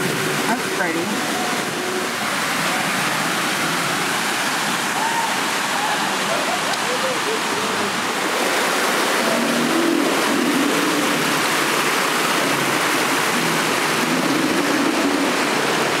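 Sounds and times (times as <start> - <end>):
waterfall pouring and splashing: 0.0 - 16.0.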